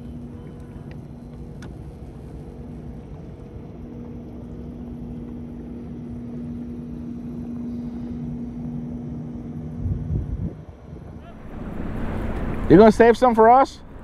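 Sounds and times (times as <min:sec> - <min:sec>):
boat motor running: 0:11.2 - 0:14.0.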